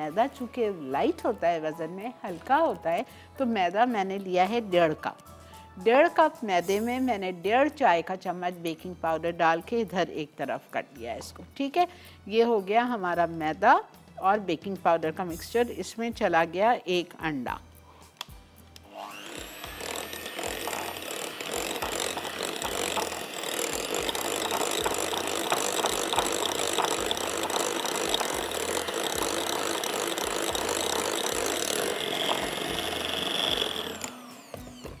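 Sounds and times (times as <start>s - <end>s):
electric hand mixer running: 18.8s - 35.0s.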